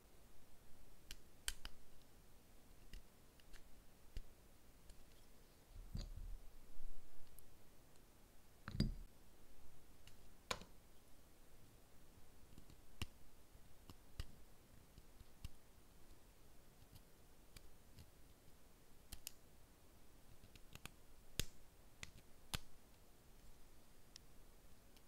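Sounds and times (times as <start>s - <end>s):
small clicks and taps of nail tools: 1.1s - 1.8s, 2.8s - 4.3s, 13.9s - 14.4s, 19.1s - 19.4s, 20.3s - 22.7s.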